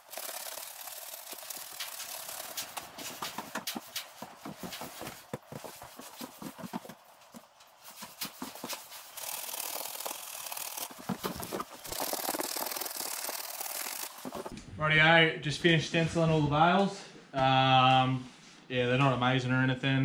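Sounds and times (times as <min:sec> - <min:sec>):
spray paint can hissing: 0:00.0 - 0:04.2, 0:08.2 - 0:14.5.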